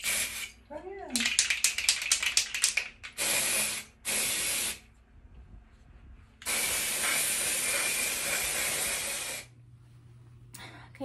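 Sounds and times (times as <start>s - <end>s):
aerosol can spraying: 0.0s - 0.6s, 1.2s - 4.8s, 6.4s - 9.5s.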